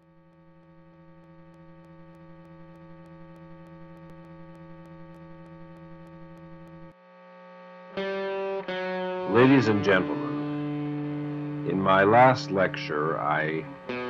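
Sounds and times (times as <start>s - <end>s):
static ticks: 0.0s - 7.0s
buzzy electrical hum: 0.0s - 14.0s.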